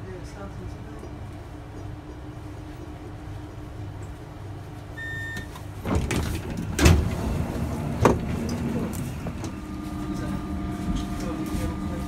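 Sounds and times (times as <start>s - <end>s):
standing train humming: 0.0s - 12.0s
short beep: 5.0s - 5.5s
train doors opening with thud: 5.3s - 9.6s.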